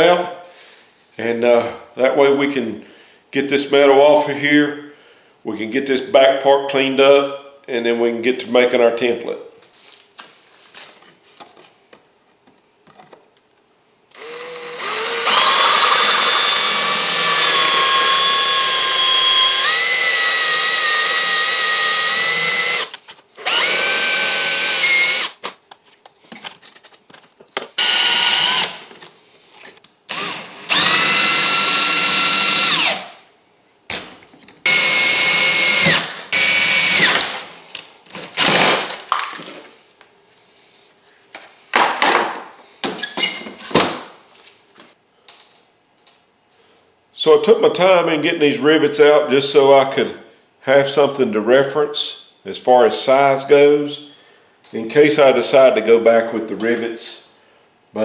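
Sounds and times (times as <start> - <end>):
cordless drill drilling metal: 14.1 - 25.6, 27.8 - 29.0, 30.0 - 33.2, 34.7 - 37.3, 38.1 - 38.5.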